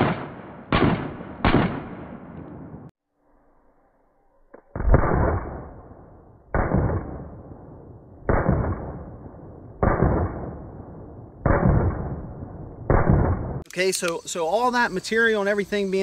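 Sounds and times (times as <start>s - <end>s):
slowed-down pistol shots: 0.0s - 2.9s, 4.5s - 13.6s.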